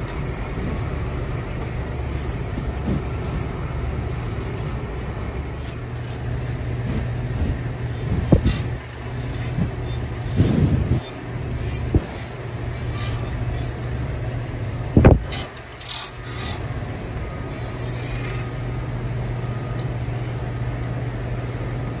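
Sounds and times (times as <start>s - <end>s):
power grinder on hoof: 5.6s - 13.8s.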